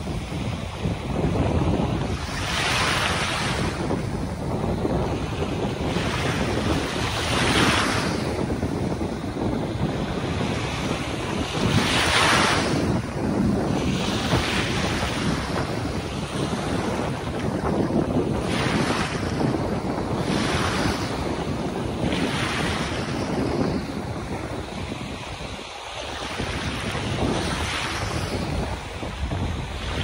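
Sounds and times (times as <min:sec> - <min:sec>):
sea waves washing: 0:00.0 - 0:30.0
wind rumbling on microphone: 0:00.0 - 0:30.0.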